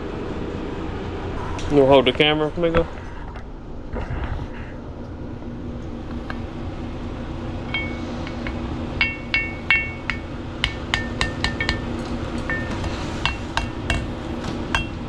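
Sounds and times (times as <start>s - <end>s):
hammer tapping metal: 7.7s - 14.1s, 14.7s - 15.0s.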